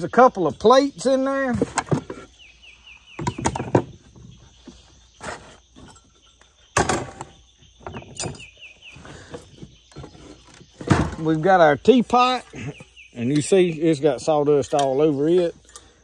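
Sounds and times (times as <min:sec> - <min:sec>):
rapid high chirping call: 0:07.4 - 0:09.9.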